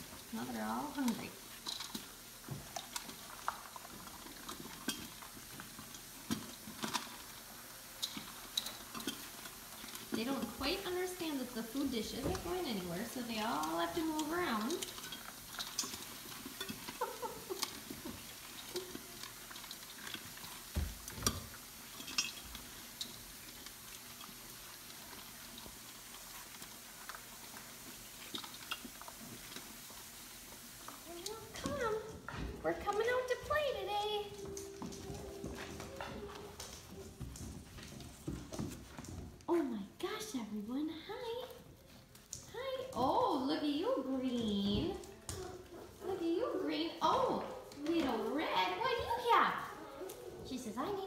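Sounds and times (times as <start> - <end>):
puppies crunching kibble: 0.0 - 51.0
kibble clicking on metal bowl: 8.0 - 29.8.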